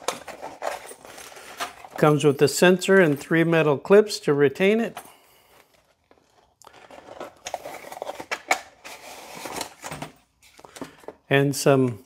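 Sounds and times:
plastic and paper crinkling: 0.0s - 2.3s, 5.3s - 11.3s.

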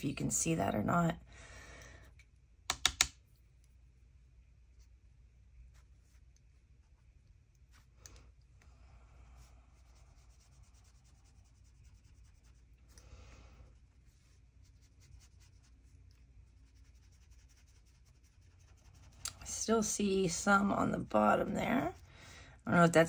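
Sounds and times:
low steady hum: 0.0s - 23.0s
wet brush rubbing on paper: 4.7s - 8.1s, 9.0s - 23.0s.

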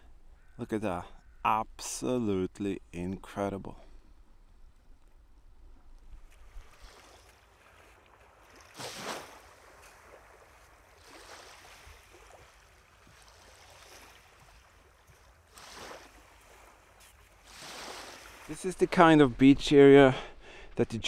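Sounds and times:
small waves washing onto beach: 6.1s - 19.4s.

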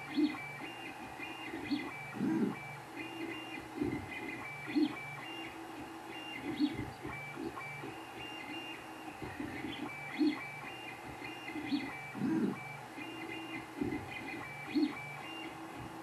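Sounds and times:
cooling fans humming: 0.0s - 16.0s.

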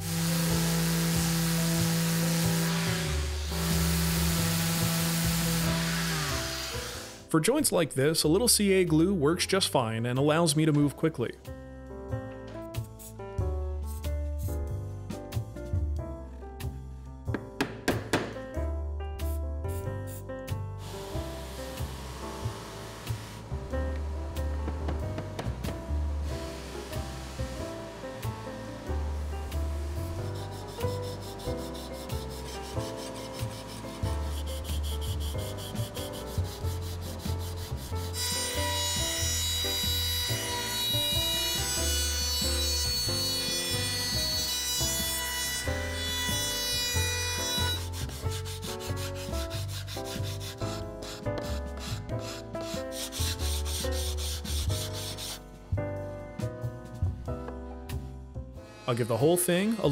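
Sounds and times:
background music: 0.0s - 59.9s
sandpaper rasping on wood: 30.0s - 55.4s.

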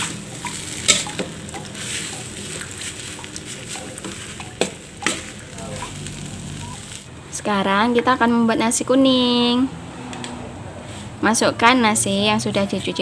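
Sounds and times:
metal spatula scraping wok: 0.0s - 7.1s
hot oil sizzling: 0.0s - 8.0s.

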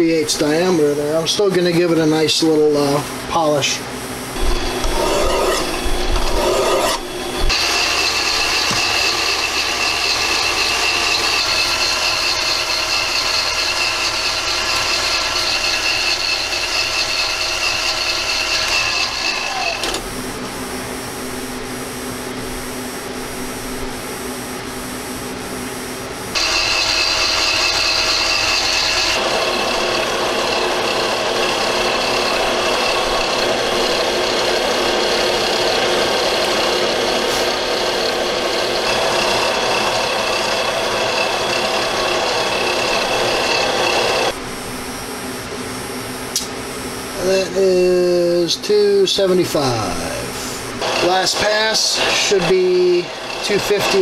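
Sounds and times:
lathe motor whine: 0.0s - 54.0s.

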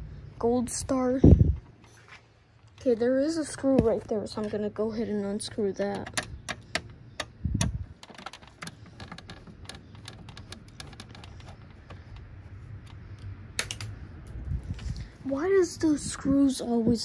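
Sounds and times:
screwdriver clicking on metal: 5.8s - 12.3s.

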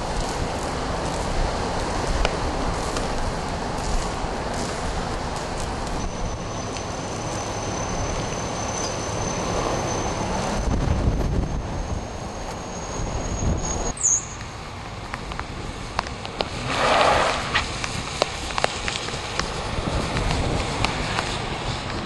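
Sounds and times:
raindrop ticks: 0.0s - 6.9s, 14.3s - 16.7s, 17.5s - 22.0s
wind buffeting microphone: 0.0s - 8.4s, 9.4s - 14.0s, 14.8s - 22.0s
wind and rain hiss: 0.0s - 22.0s.

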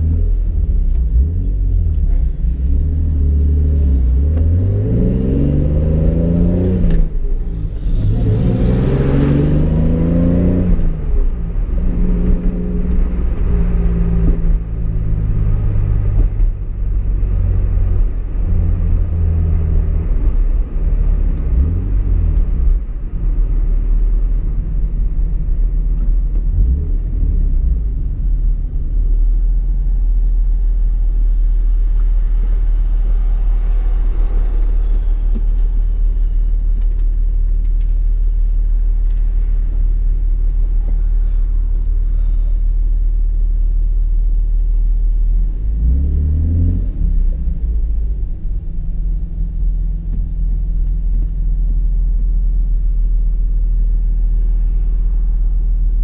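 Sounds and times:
car engine revving through gears: 0.0s - 16.6s, 45.6s - 51.3s.

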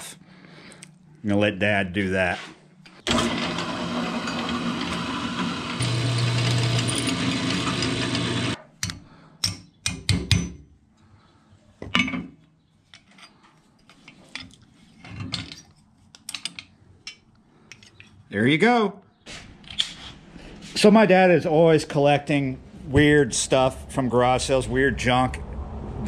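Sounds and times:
drill press drilling metal: 3.0s - 8.6s.

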